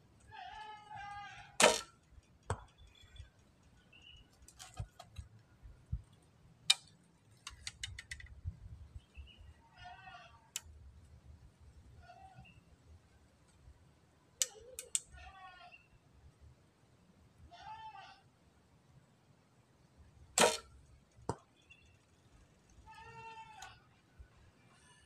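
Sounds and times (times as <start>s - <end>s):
clicks and taps of bow handling: 1.6s - 8.5s, 14.4s - 15.2s
bow string snap: 20.4s - 20.7s.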